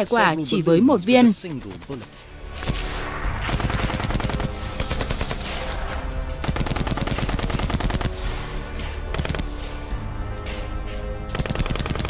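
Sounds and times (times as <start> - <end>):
machine gun firing bursts: 1.5 - 2.2, 3.5 - 5.6, 6.4 - 8.3, 9.1 - 9.6, 11.3 - 12.0.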